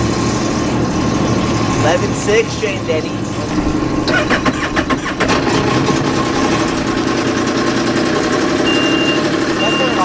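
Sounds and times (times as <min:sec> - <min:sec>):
engine idling: 0:00.0 - 0:10.0
clicks and knocks: 0:03.4 - 0:07.4.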